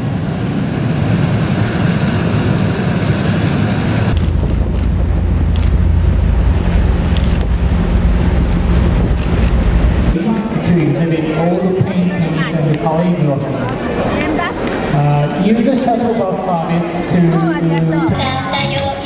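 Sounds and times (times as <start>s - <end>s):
wind buffeting microphone: 0.3s - 10.2s
low machine hum: 4.0s - 10.2s.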